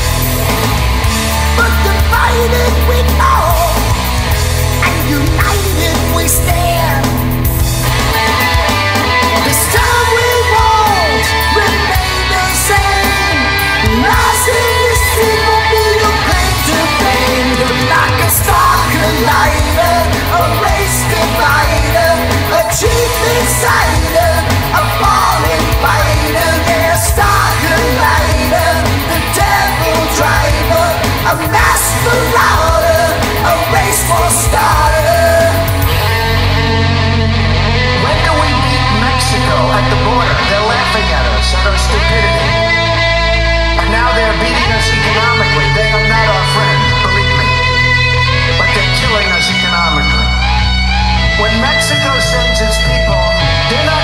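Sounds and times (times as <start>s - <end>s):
drums with cymbal hits: 0.0s - 36.6s
bass guitar: 0.0s - 54.0s
rock band playing: 0.0s - 54.0s
sliding lead guitar line: 0.0s - 54.0s.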